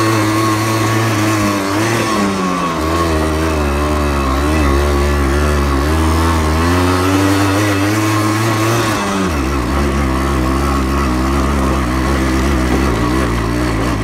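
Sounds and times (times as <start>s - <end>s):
motorcycle engine under load: 0.0s - 14.0s.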